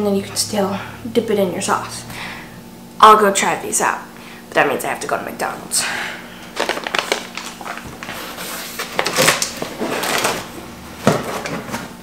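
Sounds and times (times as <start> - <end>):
rummaging in a cardboard box: 6.6 - 12.0
knocks of items being handled: 11.0 - 12.0.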